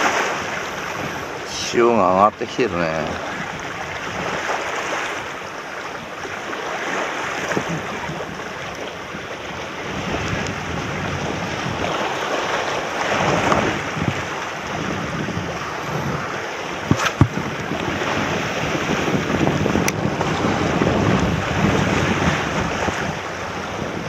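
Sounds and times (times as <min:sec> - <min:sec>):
waves breaking over rocks: 0:00.0 - 0:24.0
wind buffeting microphone: 0:00.0 - 0:24.0.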